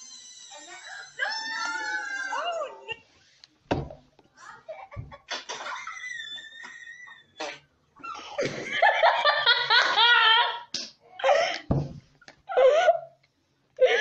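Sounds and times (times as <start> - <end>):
boy laughing: 8.0 - 11.3
low thump: 11.7 - 12.0.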